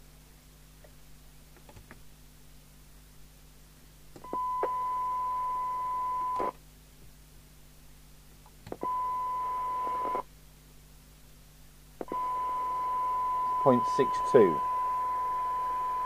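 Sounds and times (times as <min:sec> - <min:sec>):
steady test tone from radio speaker: 0:04.2 - 0:06.6, 0:08.8 - 0:10.3, 0:12.0 - 0:16.0
radio hiss: 0:13.5 - 0:16.0.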